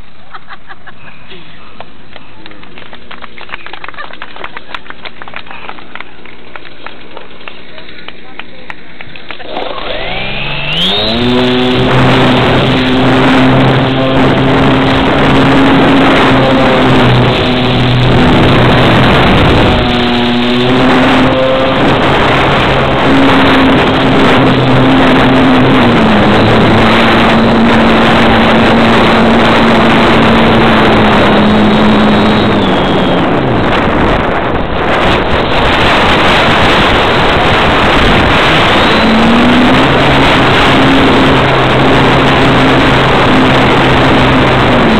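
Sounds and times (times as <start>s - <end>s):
model airplane motor and propeller: 1.3s - 44.9s
air rushing over microphone: 10.6s - 44.9s.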